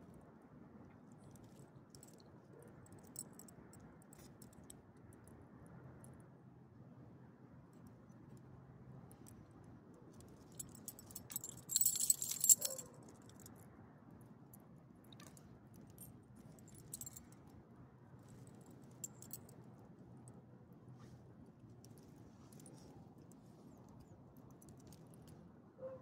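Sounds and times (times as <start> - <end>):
small metal pieces jingling: 10.6 - 12.9, 16.7 - 17.2.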